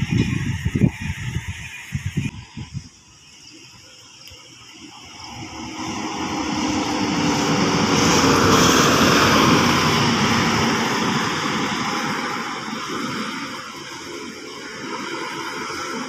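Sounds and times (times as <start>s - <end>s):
bus engine passing: 4.5s - 16.0s.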